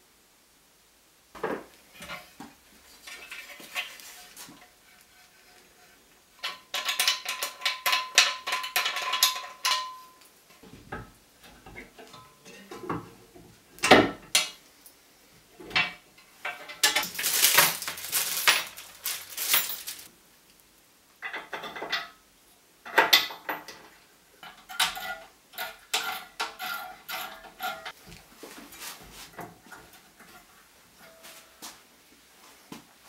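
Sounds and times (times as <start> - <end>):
plastic and metal parts clattering: 6.4 - 10.0, 15.7 - 20.1
allen keys clinking: 16.6 - 20.1
plastic bag rustling: 16.7 - 20.1.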